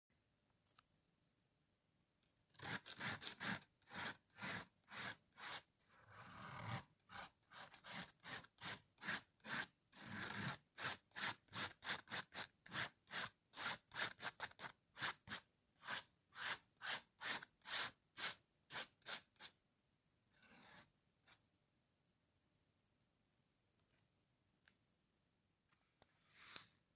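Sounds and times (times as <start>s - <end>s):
palette knife scraping: 2.6s - 19.6s.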